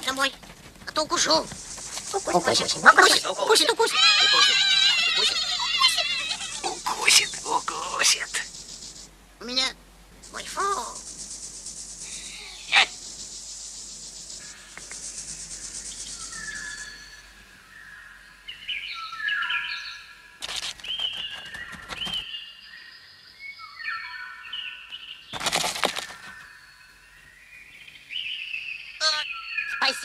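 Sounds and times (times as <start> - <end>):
bursts of rustling: 0.0 - 9.1, 20.4 - 22.2, 25.3 - 26.4
short overlapping chirps: 0.9 - 9.6, 10.2 - 17.0
high buzz of insect wings: 1.0 - 17.2.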